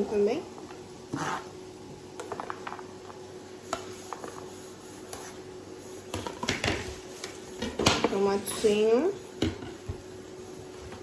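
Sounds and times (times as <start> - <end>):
clicks and taps of kitchen utensils: 6.1 - 8.8.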